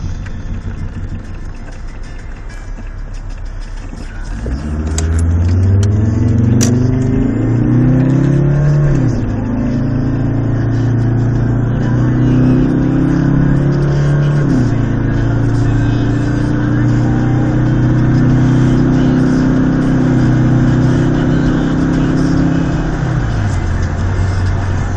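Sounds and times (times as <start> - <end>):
car engine accelerating: 0.0 - 24.9.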